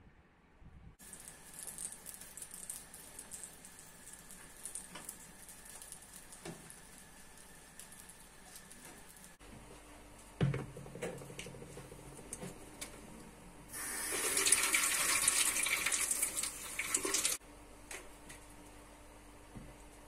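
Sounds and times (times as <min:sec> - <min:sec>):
water running from kitchen tap: 0:01.0 - 0:09.4, 0:13.7 - 0:17.4
knock of object set down: 0:10.4 - 0:11.2.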